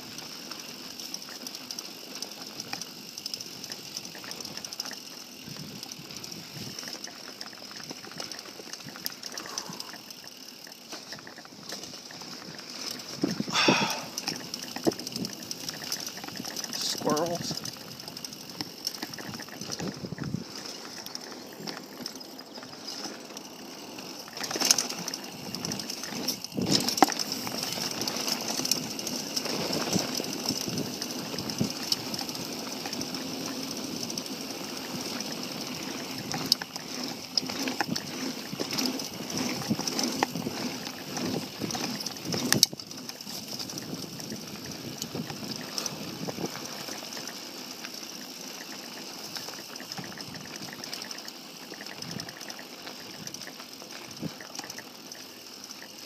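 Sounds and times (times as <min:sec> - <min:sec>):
bike rattling and clicking: 0:00.0 - 0:56.0
bike tyres rolling on dirt: 0:00.0 - 0:56.0.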